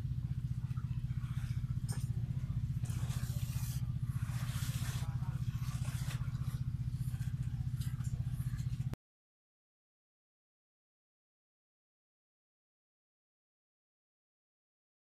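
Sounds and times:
pulsing machine hum: 0:00.0 - 0:09.0.

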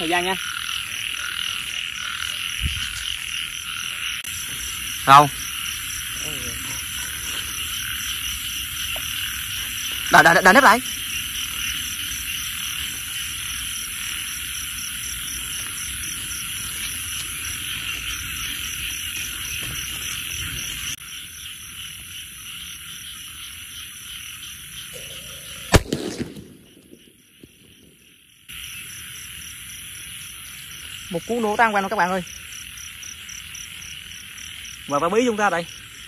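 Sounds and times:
frogs croaking: 0:00.0 - 0:36.0
insects chirping: 0:00.0 - 0:36.0
firecracker bang: 0:25.5 - 0:27.1.

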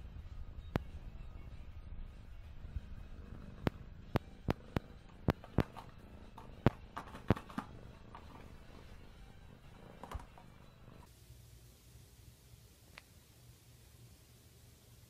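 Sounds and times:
plastic cup knocked about: 0:05.3 - 0:08.4.

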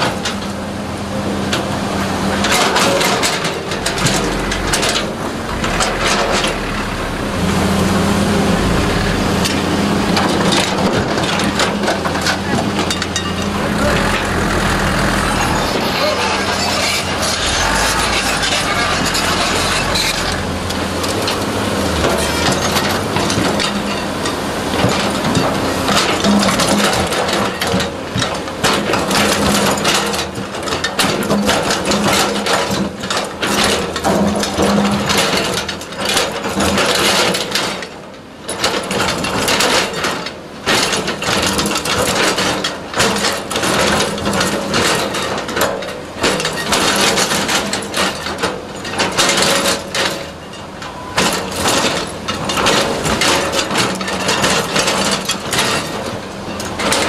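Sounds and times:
engine humming: 0:00.3 - 0:27.2
excavator bucket scraping rock: 0:02.3 - 0:38.0, 0:38.7 - 0:57.0.

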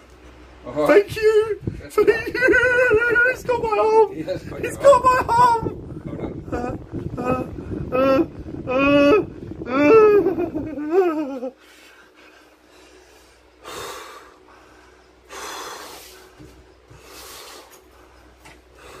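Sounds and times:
man breathing heavily: 0:11.5 - 0:19.0.

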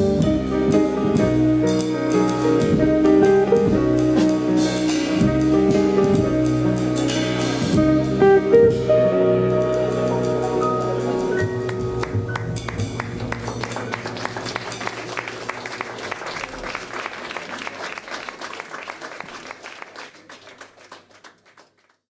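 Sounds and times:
jazz band final chord: 0:00.0 - 0:17.0
audience applauding: 0:10.9 - 0:22.0.

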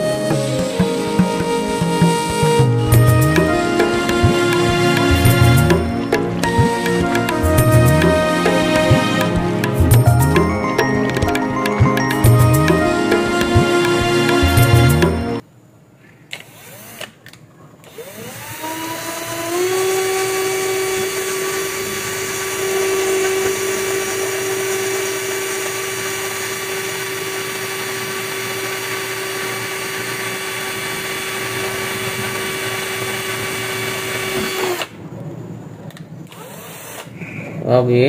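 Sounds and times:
cordless drill whining: 0:16.3 - 0:35.0, 0:36.3 - 0:37.2.

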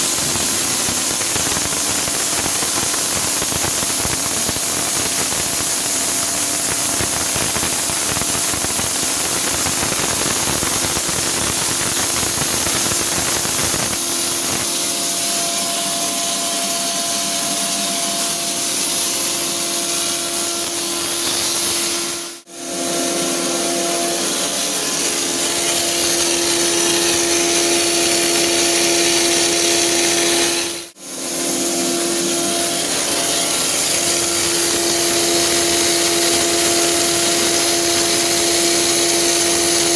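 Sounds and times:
arc welding hiss and crackle: 0:00.0 - 0:22.5, 0:24.2 - 0:39.9
droning machine hum: 0:00.0 - 0:39.9.

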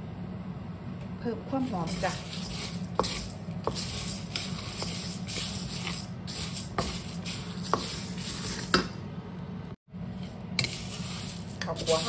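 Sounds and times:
steady low hum: 0:00.0 - 0:12.0
rice grains scraping in pan: 0:01.6 - 0:08.8, 0:10.1 - 0:12.0.

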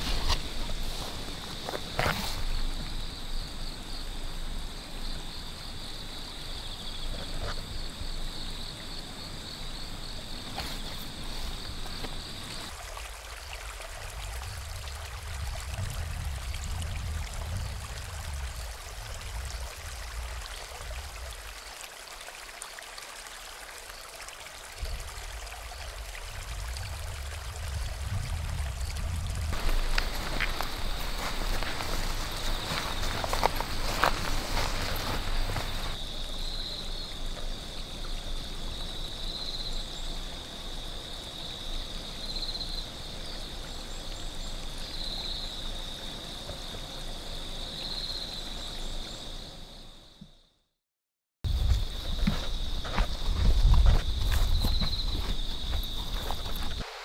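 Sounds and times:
stream flowing over stones: 0:09.9 - 0:49.1, 0:51.5 - 0:57.0.

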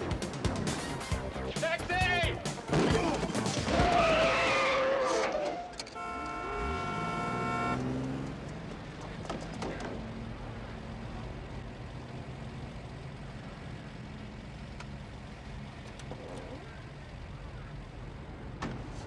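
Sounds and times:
street traffic: 0:00.0 - 0:19.0
car horn blaring: 0:05.8 - 0:08.2
car engine idling: 0:05.8 - 0:19.0.

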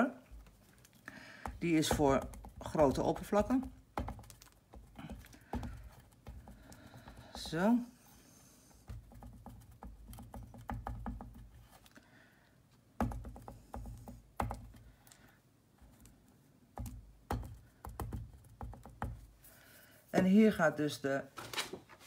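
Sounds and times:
ink dabber tapping paper: 0:01.4 - 0:07.8, 0:08.7 - 0:11.6, 0:13.0 - 0:14.8.

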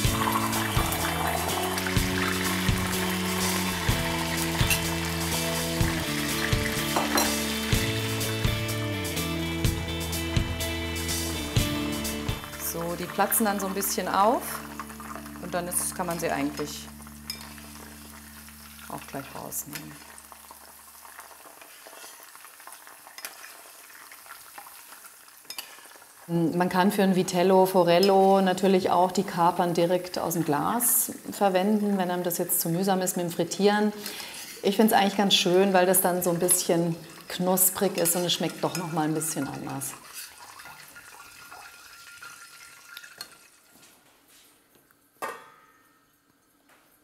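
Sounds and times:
capers sizzling in hot oil: 0:00.0 - 0:43.8
metal pot lid clink: 0:07.0 - 0:07.4, 0:17.3 - 0:17.6
metal spoon clinks: 0:17.3 - 0:17.6.

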